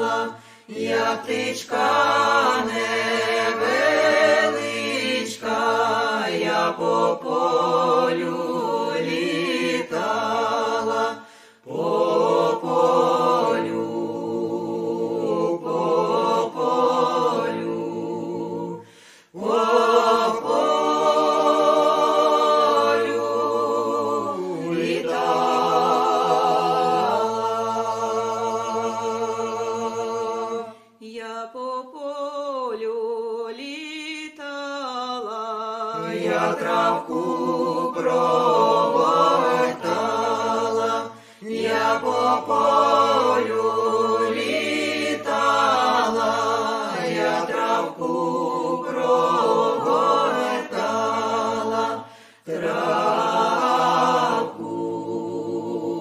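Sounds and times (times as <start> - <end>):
group singing unaccompanied: 0.0 - 56.0.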